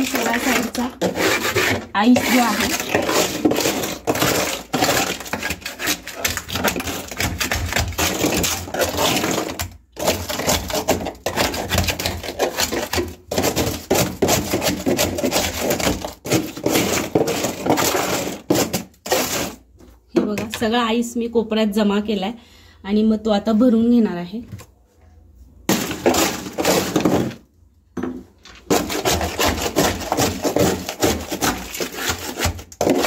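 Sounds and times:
ice scraped across metal floor: 0.0 - 19.7, 25.7 - 27.4, 28.6 - 33.0.

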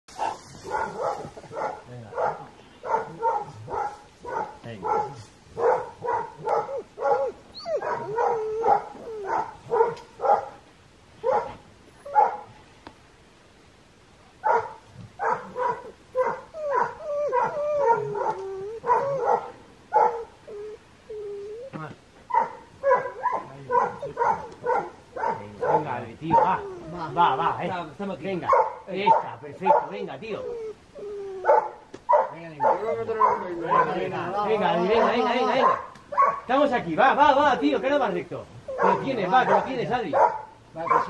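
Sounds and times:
dog barking: 0.2 - 10.6, 11.2 - 12.5, 14.4 - 20.4, 22.3 - 26.7, 28.4 - 30.0, 31.4 - 34.2, 34.8 - 36.6, 38.7 - 41.0
dog whining: 6.1 - 10.0, 15.3 - 25.0, 26.3 - 27.4, 30.2 - 31.8, 38.6 - 39.3.

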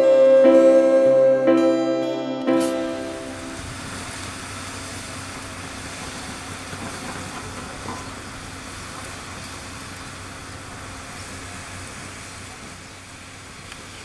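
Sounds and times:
locomotive engine humming: 0.0 - 14.0
wheel and track noise: 3.6 - 14.0.

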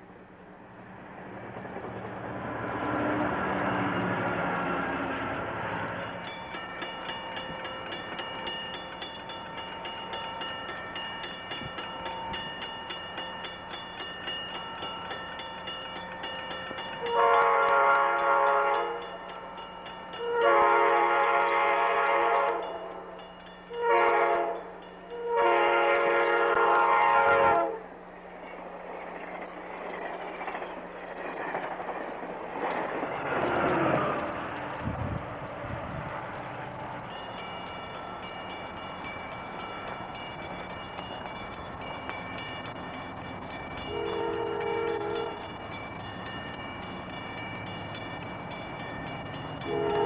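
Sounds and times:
train rushing rumble: 0.0 - 50.0
crossing warning bell ringing: 3.2 - 28.3, 33.2 - 50.0
train horn: 17.0 - 19.2, 20.1 - 28.0, 43.8 - 45.6, 49.6 - 50.0.

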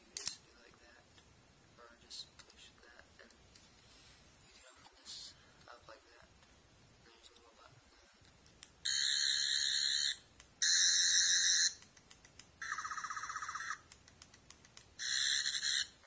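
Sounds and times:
toy sonic screwdriver buzzing: 8.9 - 11.8, 14.6 - 16.0.

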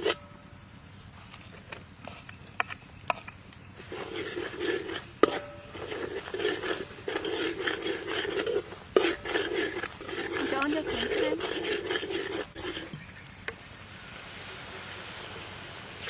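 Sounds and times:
metal spatula scraping wok: 0.0 - 0.3, 2.0 - 13.1.

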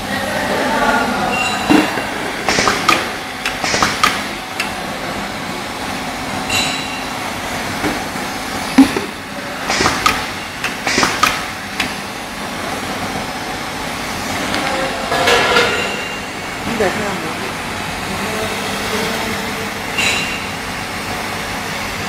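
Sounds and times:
faint machine hum: 0.0 - 22.0
machine clacking and knocking: 1.7 - 4.8, 8.8 - 12.0.

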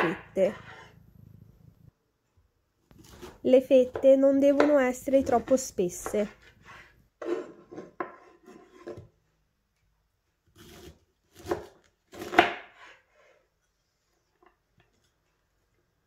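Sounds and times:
knife cutting on wooden board: 2.9 - 4.0, 4.6 - 9.0.

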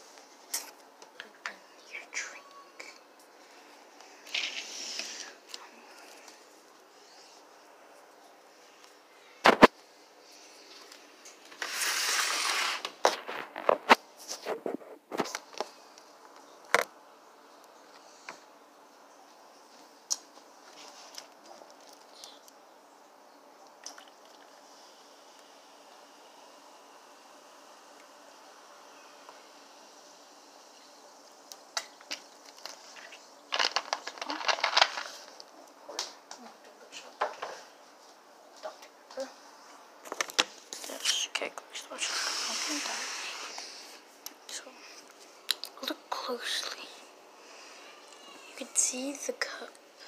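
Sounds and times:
plastic bottle opening hiss: 4.3 - 5.4, 11.3 - 15.7, 42.0 - 44.0
plastic crinkling: 32.0 - 35.6.

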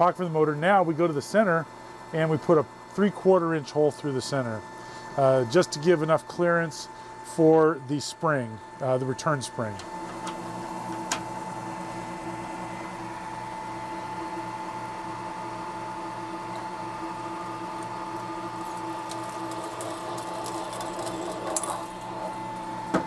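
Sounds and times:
milling machine drilling metal: 16.3 - 23.0.

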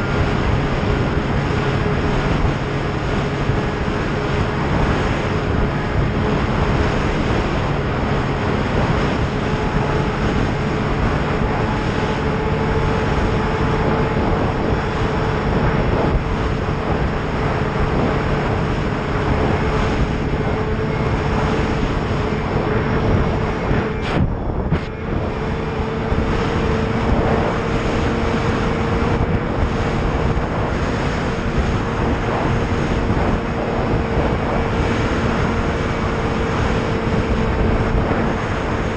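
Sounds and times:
rush of travel noise: 0.0 - 38.9
snowmobile engine running: 0.0 - 38.9.

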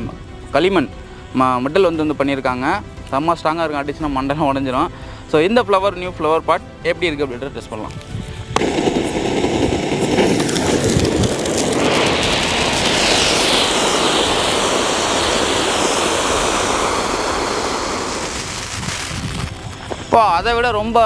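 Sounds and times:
firework fountain hissing: 8.4 - 21.0.

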